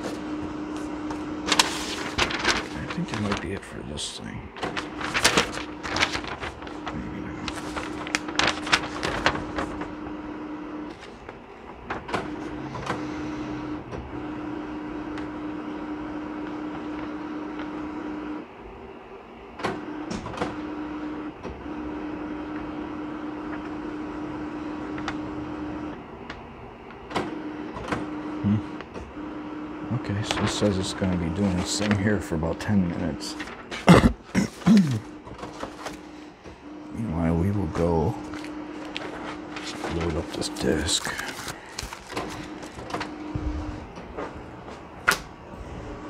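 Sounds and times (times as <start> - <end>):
paper handling clicks: 0.0 - 3.8, 4.6 - 10.2, 10.8 - 13.1, 30.2 - 36.2, 37.8 - 45.3
paper rustling: 0.0 - 13.1, 30.0 - 36.3, 37.5 - 45.3
printer motors running: 0.0 - 46.0.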